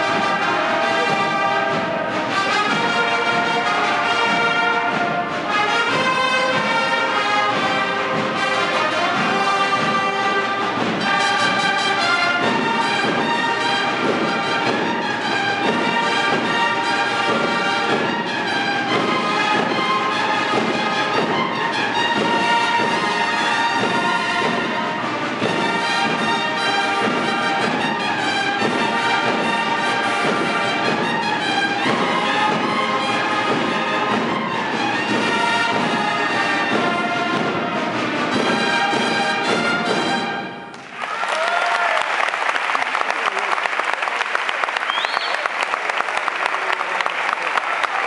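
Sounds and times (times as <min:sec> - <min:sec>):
brass band playing: 0:00.0 - 0:41.5
audience applause: 0:40.7 - 0:48.0.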